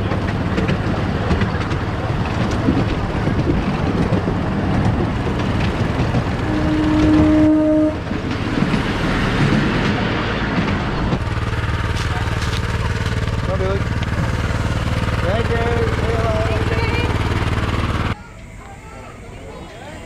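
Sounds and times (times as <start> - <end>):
miniature train running on track: 0.0 - 20.0
locomotive toot: 6.2 - 8.4.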